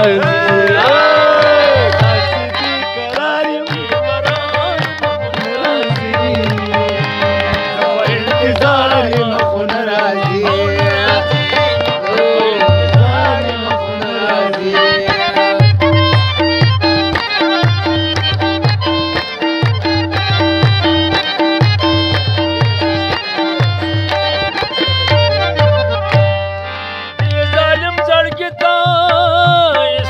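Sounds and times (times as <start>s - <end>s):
harmonium: 0.0s - 30.0s
tabla rhythm: 0.0s - 30.0s.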